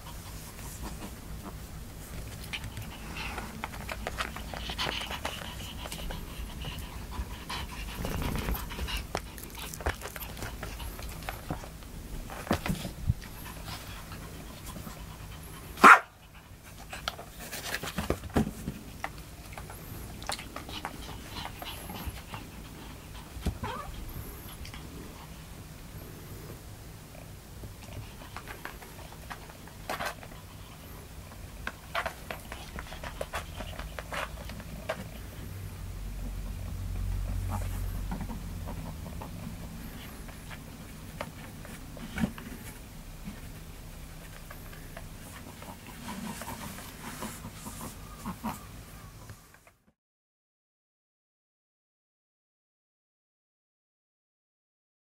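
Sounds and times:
dog panting: 0.0s - 17.8s, 19.0s - 25.5s, 37.2s - 42.7s, 44.2s - 48.7s
dog barking: 15.8s - 16.2s.

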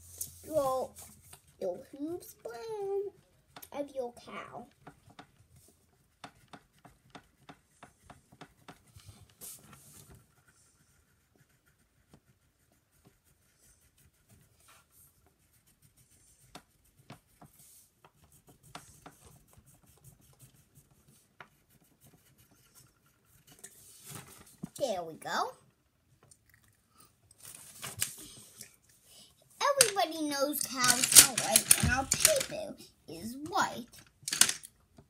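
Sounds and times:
colouring scratching on paper: 4.6s - 25.6s.

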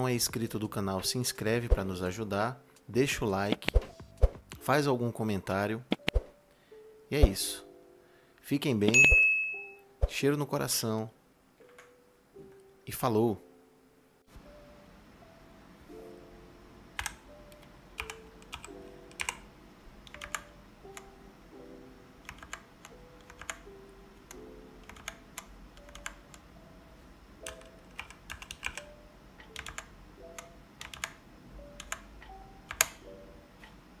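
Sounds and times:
soft background music: 0.0s - 34.0s
mechanical keyboard key clacks: 32.7s - 33.0s.

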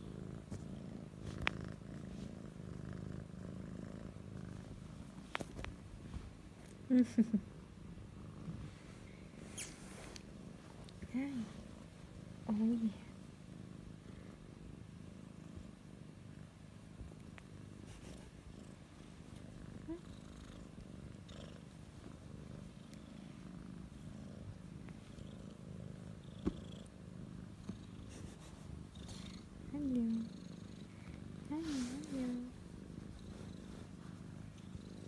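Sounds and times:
kitten purring: 0.0s - 35.0s.

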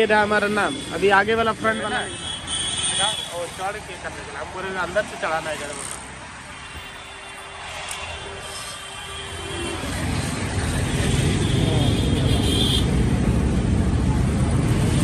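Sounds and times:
motor vehicle rumble: 8.2s - 15.0s.

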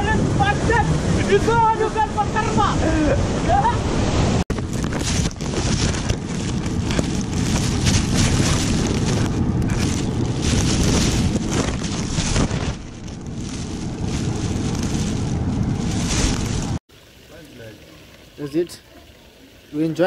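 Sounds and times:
wind buffeting microphone: 0.0s - 16.8s
plastic bag crinkling: 4.5s - 16.8s.

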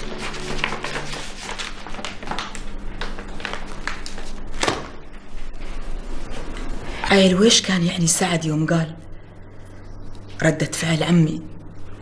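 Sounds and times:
paper rustling: 0.0s - 6.7s.

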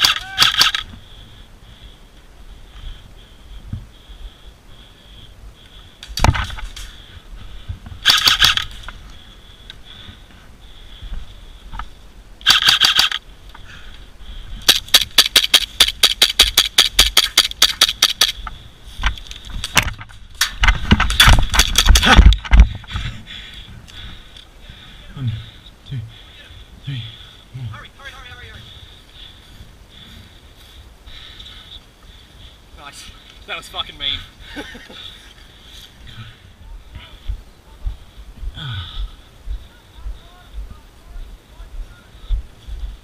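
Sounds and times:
airsoft gun bursts: 0.0s - 0.9s, 8.0s - 8.9s, 12.4s - 13.2s, 14.6s - 18.4s.

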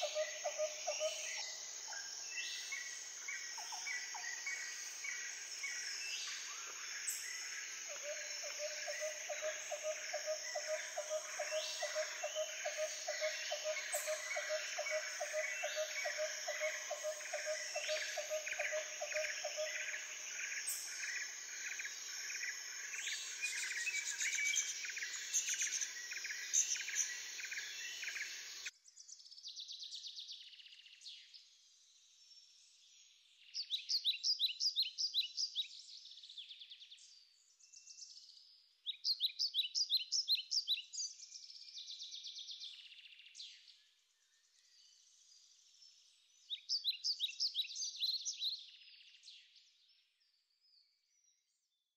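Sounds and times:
rhythmic insect chorus: 0.0s - 28.7s.

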